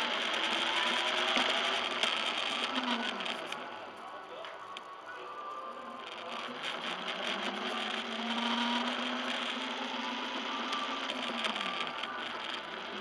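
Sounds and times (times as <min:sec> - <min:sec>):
electric motor whining: 0:06.5 - 0:13.0.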